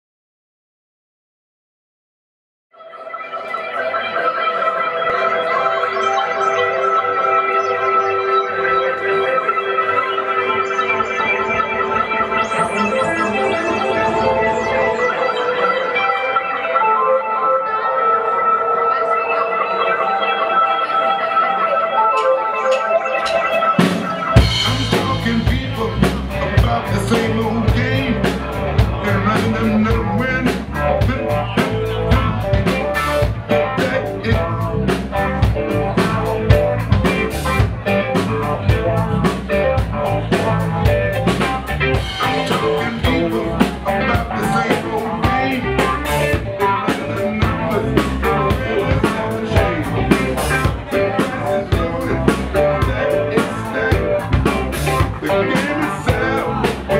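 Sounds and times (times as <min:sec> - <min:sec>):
guitar: 0:02.8 - 0:56.9
live band instrumental groove: 0:03.4 - 0:56.9
drum kit beat: 0:22.7 - 0:56.9.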